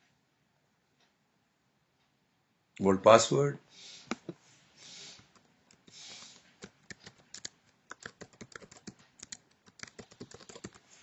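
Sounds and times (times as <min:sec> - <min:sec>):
soft hisses: 0:03.7 - 0:06.6.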